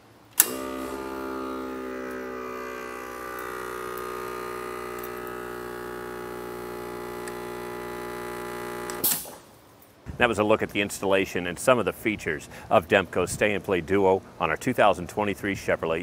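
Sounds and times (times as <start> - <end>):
electric air compressor buzzing: 0.4 - 9.5.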